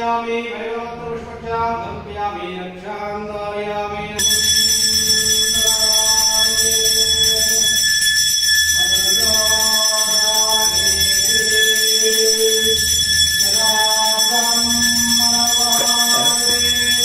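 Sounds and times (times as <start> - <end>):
temple bell ringing: 4.2 - 17.0
person singing devotional song: 8.8 - 17.0.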